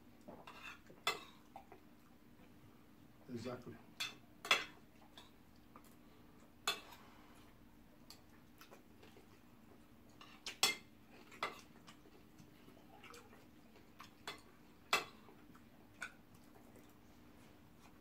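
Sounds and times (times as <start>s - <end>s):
spoons clinking on ceramic plates: 4.0s - 4.8s, 10.2s - 11.7s.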